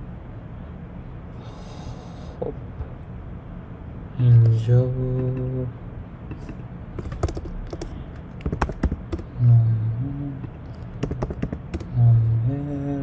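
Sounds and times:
keyboard key clicks: 0:06.3 - 0:09.3, 0:10.4 - 0:11.9
man humming: 0:09.2 - 0:13.0.

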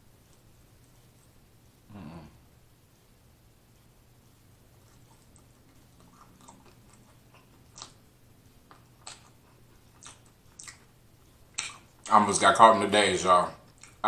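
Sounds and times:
person chewing and lip-smacking: 0:04.8 - 0:12.2, 0:13.6 - 0:14.0.

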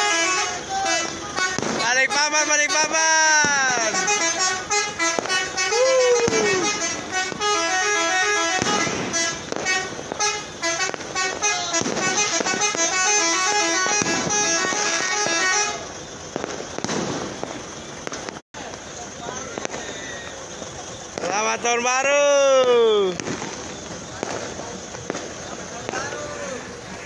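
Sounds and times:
melodic truck horns: 0:00.0 - 0:18.0
noisy hiss: 0:00.0 - 0:27.0.

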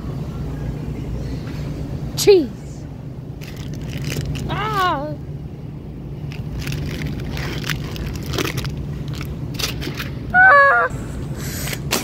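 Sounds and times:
plastic wrap crinkling: 0:03.4 - 0:04.6, 0:06.3 - 0:10.1.

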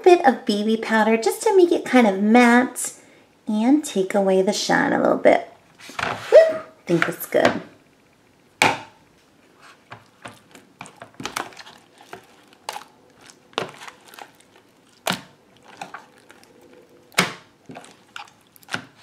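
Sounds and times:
slime squelching: 0:09.5 - 0:19.0
metal spoon stirring slime: 0:09.7 - 0:19.0.

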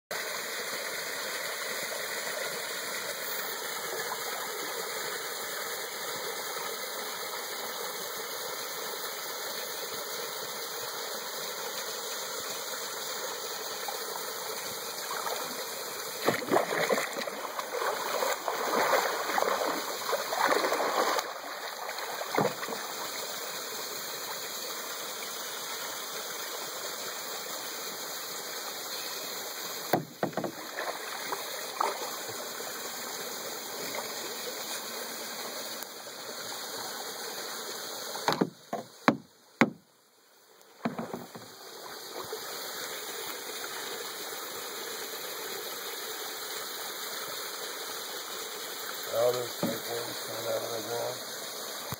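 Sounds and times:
creek water flowing: 0:00.1 - 0:51.9
fish splashing at surface: 0:16.2 - 0:23.2, 0:30.0 - 0:32.4.

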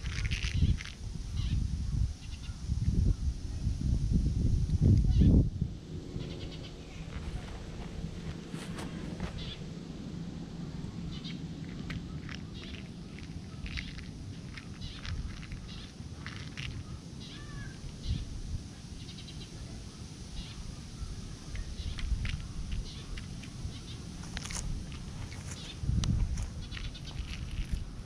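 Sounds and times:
steady low rumble: 0:00.0 - 0:28.0
high clicks and chirps: 0:11.2 - 0:16.9.

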